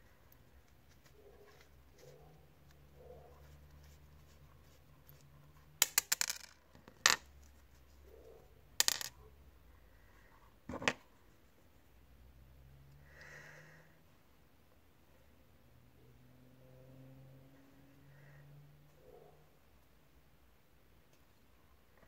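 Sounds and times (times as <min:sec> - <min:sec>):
small metal parts clicking: 0:05.8 - 0:07.2.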